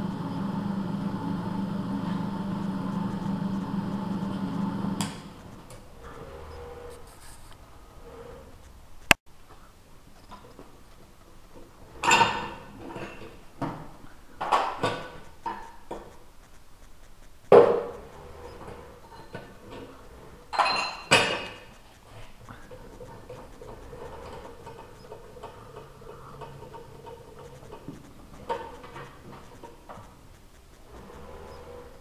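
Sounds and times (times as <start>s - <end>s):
faint steady hum: 0.0s - 32.0s
metal parts clanking on steel table: 20.5s - 21.7s.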